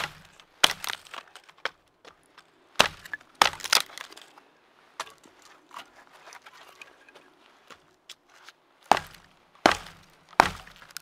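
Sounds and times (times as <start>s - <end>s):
dry wood snapping: 0.0s - 4.4s, 8.8s - 11.0s.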